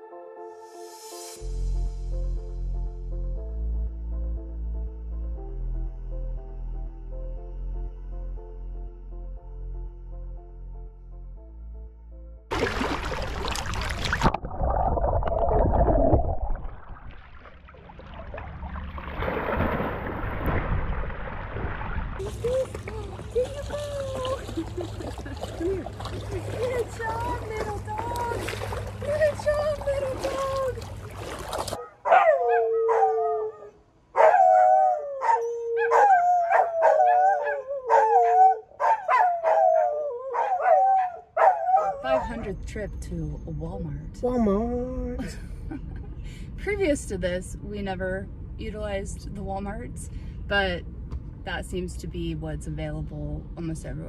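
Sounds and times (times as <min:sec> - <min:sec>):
dog swimming and splashing: 0:12.5 - 0:31.9
river water splashing: 0:12.5 - 0:31.9
dogs howling: 0:31.8 - 0:42.5.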